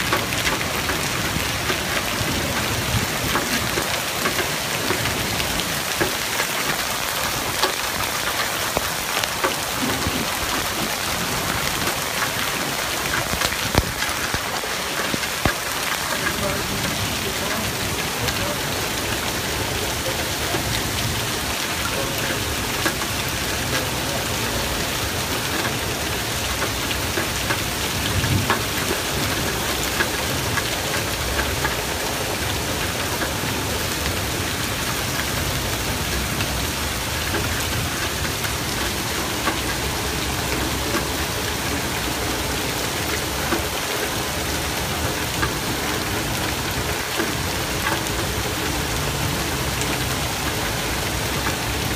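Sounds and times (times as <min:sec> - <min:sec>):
hailstones ticking: 0:00.0 - 0:51.9
heavy rain and hail: 0:00.0 - 0:51.9.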